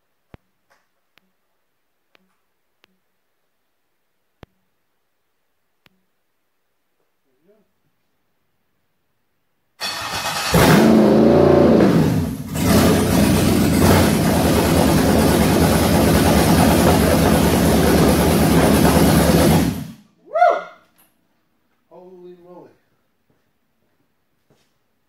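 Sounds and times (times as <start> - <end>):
engine starter cranking: 9.8 - 11.1
engine revving and running: 9.8 - 20.0
man shouting: 20.2 - 20.8.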